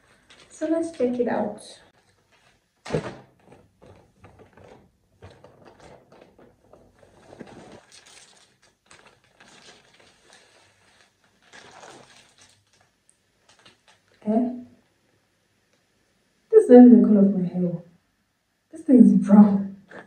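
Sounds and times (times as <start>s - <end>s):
plastic bag rustling and crinkling: 0.0s - 14.2s.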